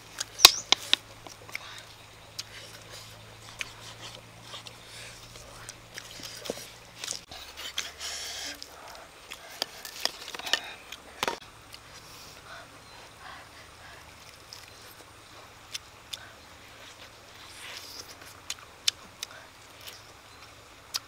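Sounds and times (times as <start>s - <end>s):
person gnawing meat: 0.2s - 11.4s.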